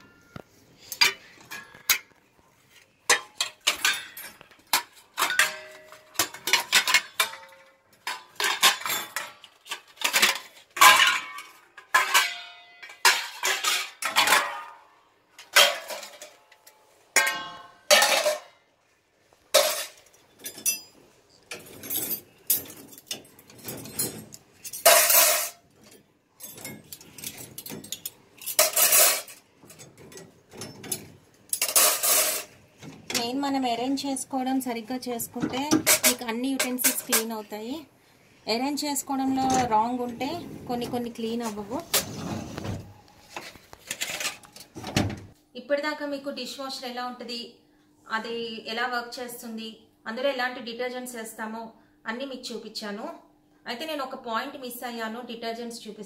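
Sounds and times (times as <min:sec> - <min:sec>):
steel dishes clattering: 0:03.0 - 0:16.5, 0:17.2 - 0:18.5, 0:19.5 - 0:33.2.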